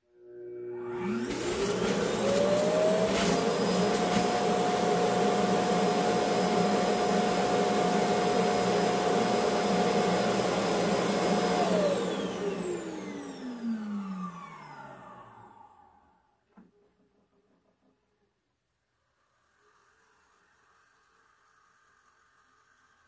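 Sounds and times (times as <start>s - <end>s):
vacuum dock suction motor: 0.4s - 16.2s.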